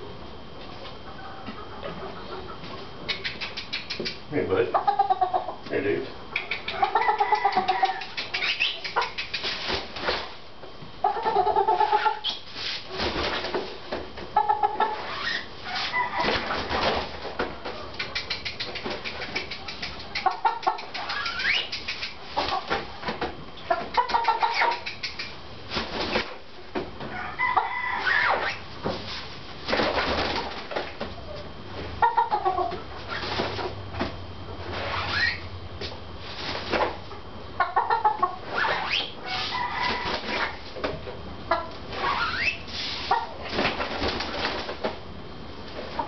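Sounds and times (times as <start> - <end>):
roosters clucking: 0.0 - 46.0
wings and feet rustling: 6.4 - 10.5, 11.6 - 32.0, 32.6 - 37.2, 38.4 - 41.0, 41.6 - 46.0.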